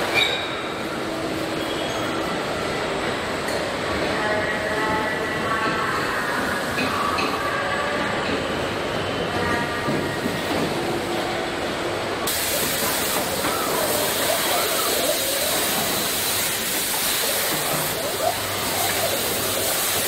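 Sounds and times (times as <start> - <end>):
faint indistinct voices: 1.0 - 20.0
hiss and rush of machinery: 10.0 - 20.0.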